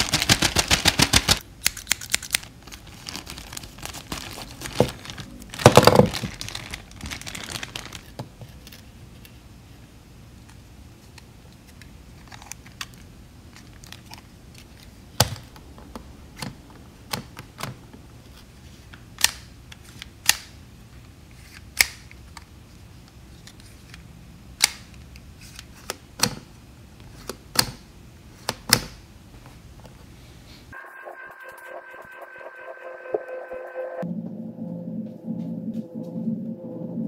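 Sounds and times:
plastic toy parts clicking: 0:01.6 - 0:02.5.

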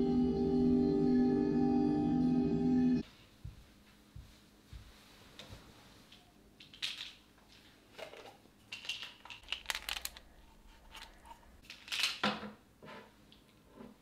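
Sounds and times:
pills rattling in plastic bottle: 0:06.6 - 0:07.2, 0:08.0 - 0:12.2.

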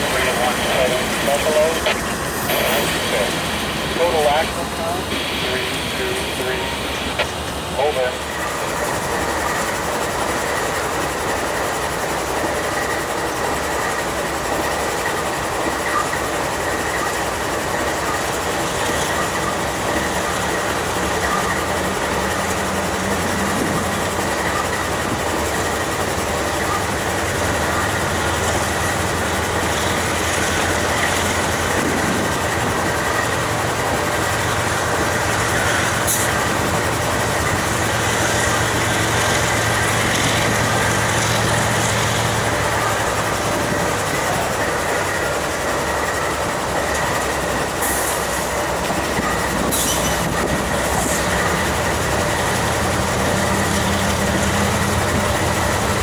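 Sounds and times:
high whine: 0:00.0 - 0:09.8
diesel locomotive engines droning: 0:00.0 - 0:56.0
train rumble: 0:00.0 - 0:56.0.

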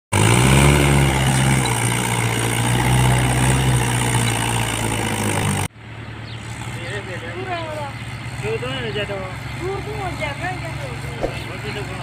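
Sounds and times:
tractor diesel engine under load: 0:00.1 - 0:12.0.

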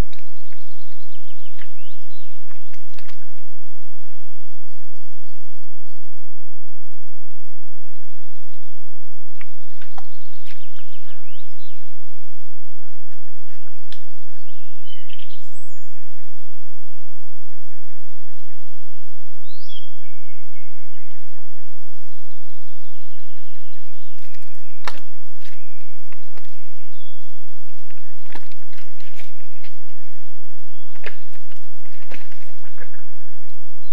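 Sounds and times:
birds chirping and whistling: 0:00.2 - 0:02.8, 0:09.6 - 0:11.9, 0:13.5 - 0:16.2, 0:19.4 - 0:21.4, 0:22.3 - 0:27.4, 0:30.7 - 0:33.0.

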